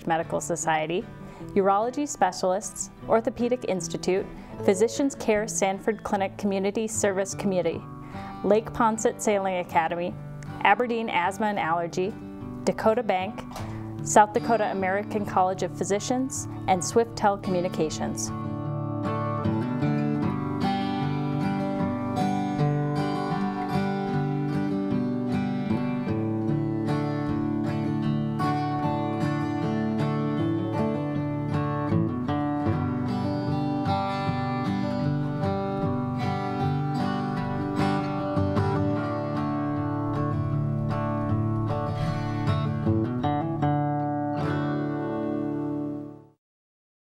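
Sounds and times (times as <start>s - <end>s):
acoustic guitar music: 0.0s - 46.4s.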